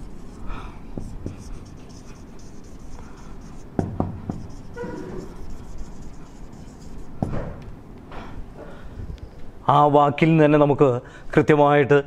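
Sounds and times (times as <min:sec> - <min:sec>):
marker scratching on whiteboard: 0:00.0 - 0:07.6
marker tapping: 0:00.9 - 0:07.7.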